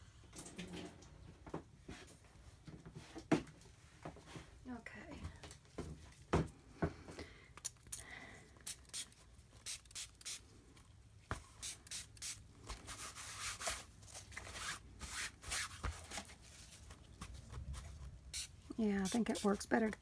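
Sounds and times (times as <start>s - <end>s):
spray bottle misting: 8.6s - 10.4s, 11.6s - 12.4s, 18.3s - 19.6s.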